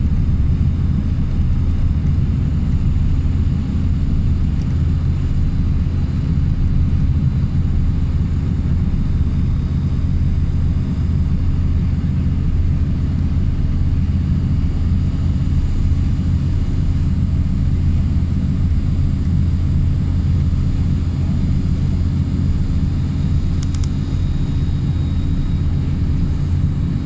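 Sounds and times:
road and engine rumble: 0.0 - 27.0
faint high clicks: 23.6 - 24.0.

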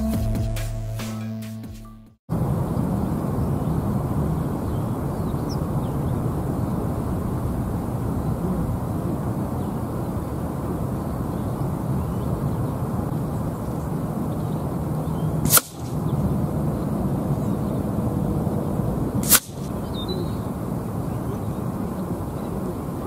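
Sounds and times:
wind rumble on microphone: 2.3 - 23.0
air rifle shots: 15.4 - 16.1, 19.2 - 19.7.

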